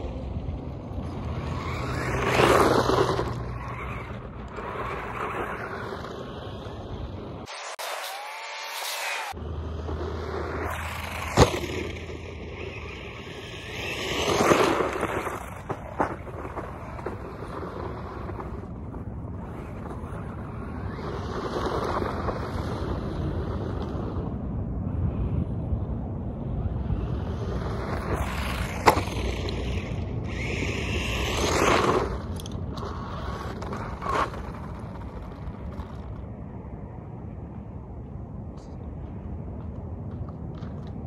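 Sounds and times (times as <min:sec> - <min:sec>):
rc truck over gravel: 0:00.0 - 0:41.0
wind rumble on microphone: 0:09.3 - 0:41.0.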